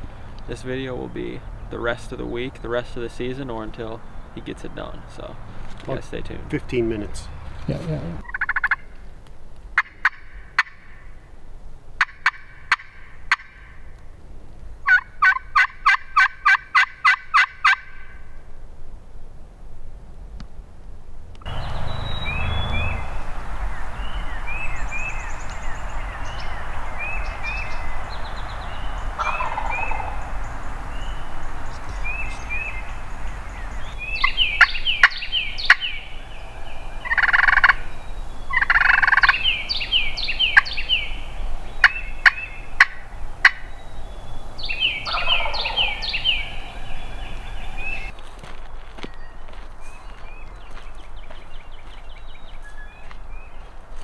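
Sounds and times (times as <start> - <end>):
turkey gobbling: 8.2 - 8.9, 9.8 - 11.0, 12.0 - 13.7, 14.9 - 18.2, 28.7 - 30.3, 34.0 - 43.7, 44.6 - 48.1.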